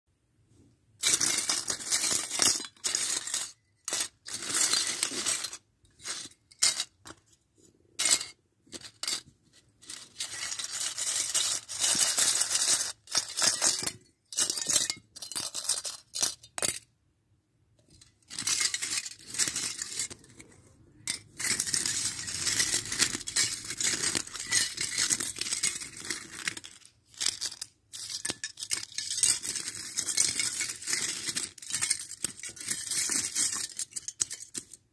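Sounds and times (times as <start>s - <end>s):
coins clinking against plastic tub: 21.1s - 34.7s.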